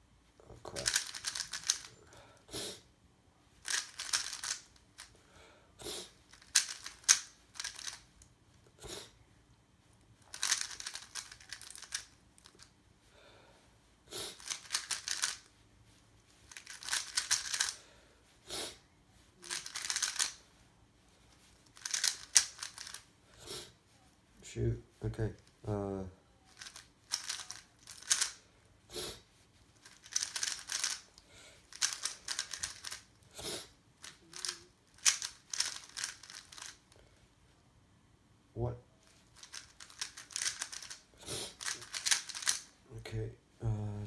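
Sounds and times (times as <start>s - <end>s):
puzzle cube clicking turns: 0.7s - 1.9s, 3.6s - 5.2s, 6.3s - 8.1s, 10.2s - 12.7s, 14.3s - 15.5s, 16.5s - 17.8s, 19.4s - 20.4s, 21.6s - 23.1s, 26.5s - 28.4s, 29.8s - 33.2s, 34.0s - 36.8s, 39.3s - 42.8s.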